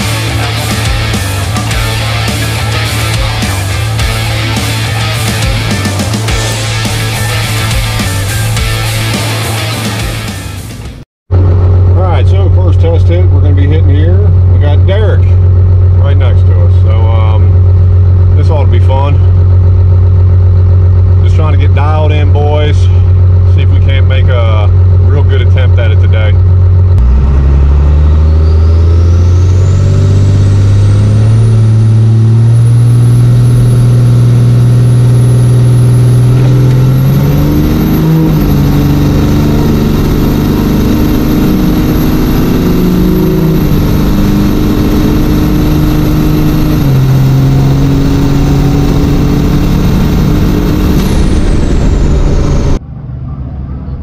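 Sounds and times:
diesel engine at full throttle: 0.0 - 54.0
high turbo whistle: 27.1 - 52.8.

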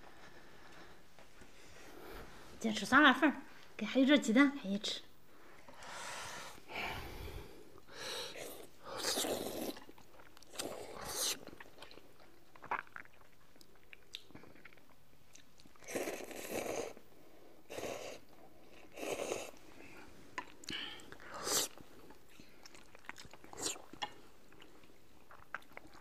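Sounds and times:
chewing and mouth noises: 8.5 - 17.0, 20.4 - 26.0.

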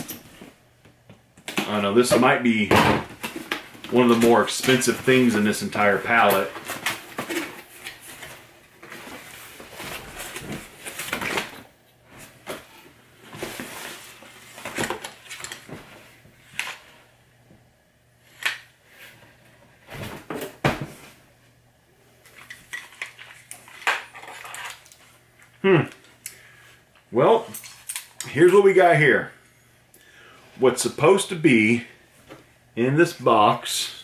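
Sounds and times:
cardboard packaging rustling: 3.2 - 16.8.

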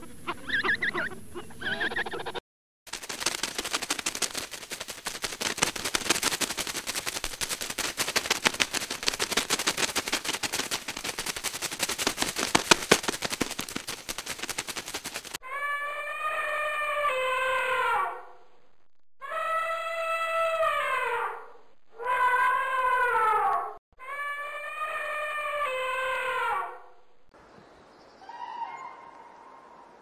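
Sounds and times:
rapid irregular crackling clicks: 2.9 - 15.4.

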